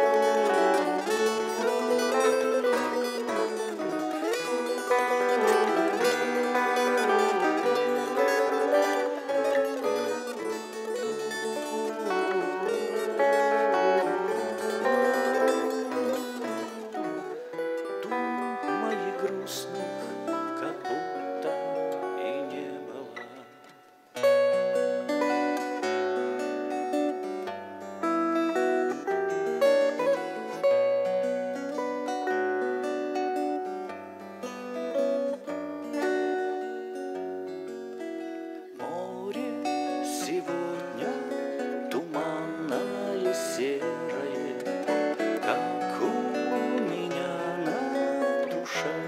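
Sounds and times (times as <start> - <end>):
loud strummed guitar chord: 0.0 - 22.5, 39.1 - 49.0
acoustic guitar lead melody: 0.0 - 49.0
guitar accompaniment: 0.0 - 49.0.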